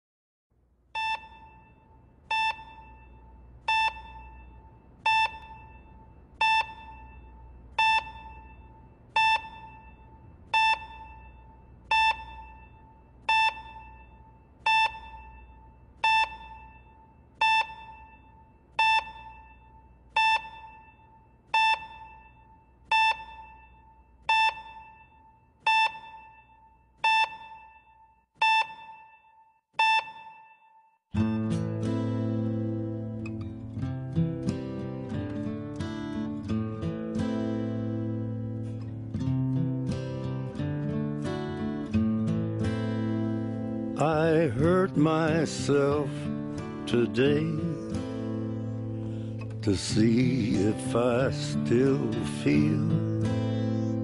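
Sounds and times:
patient monitor pulse beep: 0:01.0 - 0:33.5, 0:43.7 - 0:54.0.

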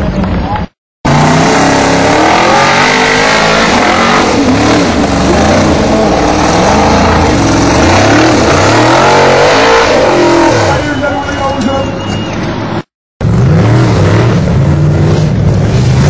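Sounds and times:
car engine revving hard: 0:01.1 - 0:10.9, 0:13.2 - 0:16.0.

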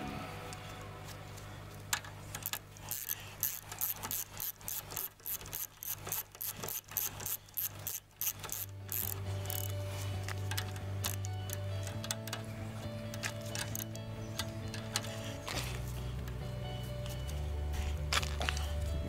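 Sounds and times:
ratchet wrench clicking: 0:01.9 - 0:16.4.

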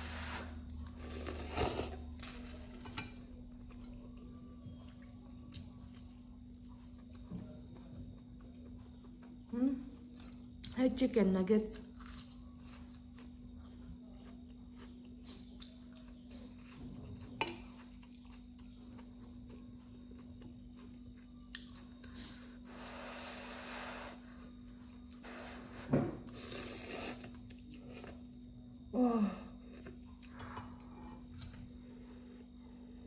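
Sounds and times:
person slurping noodles: 0:00.0 - 0:02.0, 0:26.4 - 0:27.3
steady low hum: 0:00.0 - 0:33.0.

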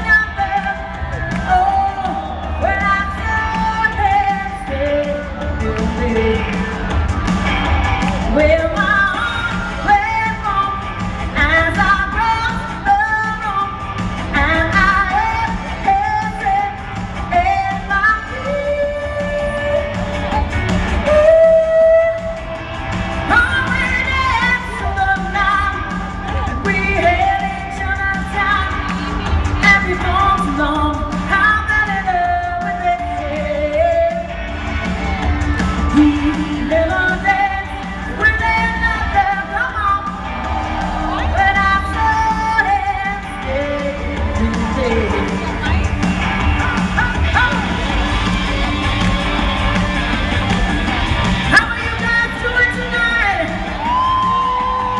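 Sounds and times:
person singing: 0:00.0 - 0:07.0, 0:23.3 - 0:54.9
dance-pop backing track with beat: 0:00.0 - 0:54.9.

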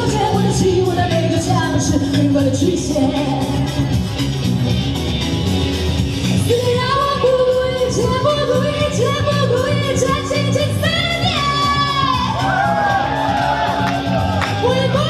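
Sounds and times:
woman singing into microphone: 0:00.0 - 0:03.8, 0:06.5 - 0:12.3
backing music: 0:00.0 - 0:15.0.

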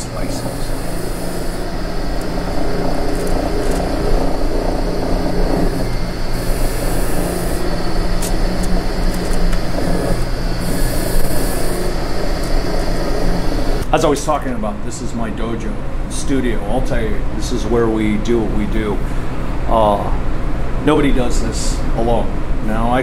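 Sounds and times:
meat slicer motor humming: 0:00.0 - 0:13.8.

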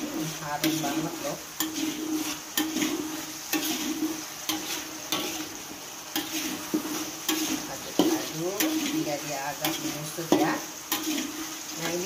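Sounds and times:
spatula scraping a wok: 0:00.0 - 0:12.0
spice paste sizzling: 0:00.0 - 0:12.0.

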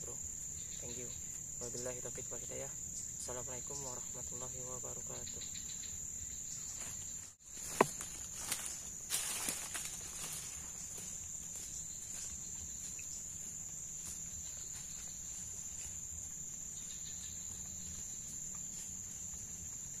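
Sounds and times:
insects trilling: 0:00.0 - 0:20.0.

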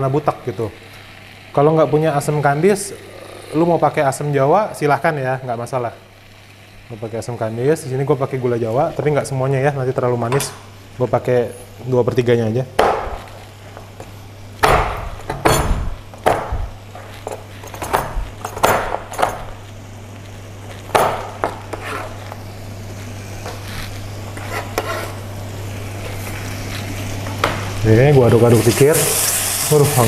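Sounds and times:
steady low hum: 0:00.0 - 0:30.0
knife chopping on cutting board: 0:14.6 - 0:16.6
paste sizzling in a wok: 0:20.8 - 0:30.0.

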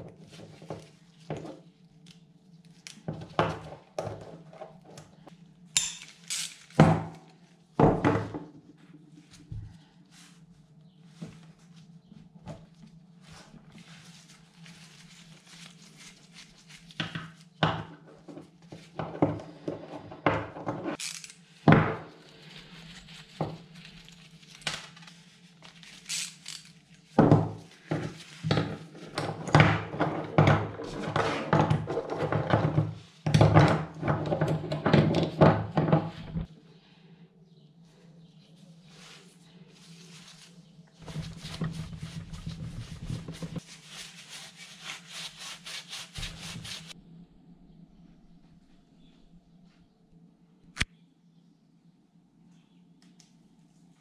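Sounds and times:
metal parts clinking on wood: 0:05.8 - 0:06.7, 0:21.0 - 0:21.4.

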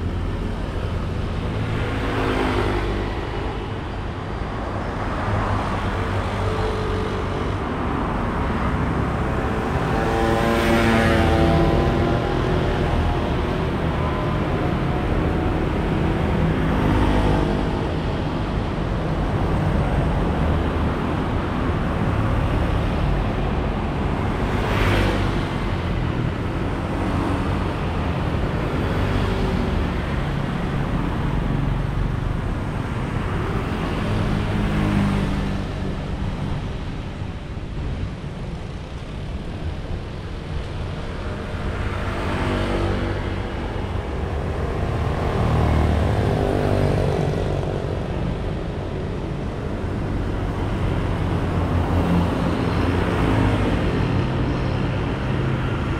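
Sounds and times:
cars passing: 0:00.0 - 0:55.9.

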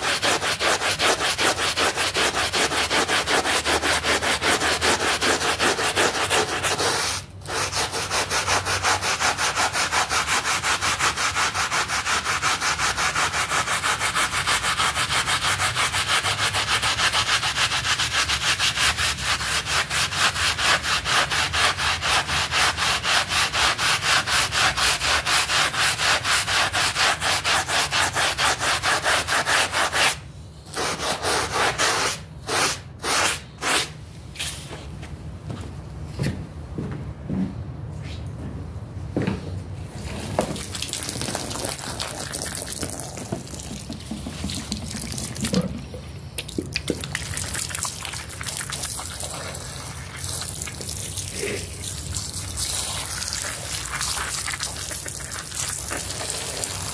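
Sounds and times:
scrub brush scrubbing wet rug: 0:00.0 - 0:34.6, 0:40.0 - 0:45.7, 0:47.0 - 0:56.9.

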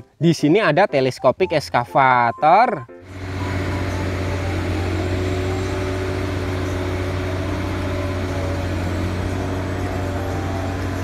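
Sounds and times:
crane diesel engine running: 0:03.0 - 0:11.0.

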